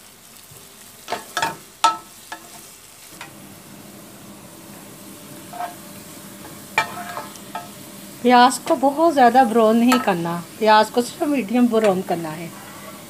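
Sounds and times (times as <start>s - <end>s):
onions sizzling in a pan: 0.0s - 13.0s
spatula scraping a pan: 1.1s - 2.8s, 5.4s - 7.8s, 11.7s - 13.0s.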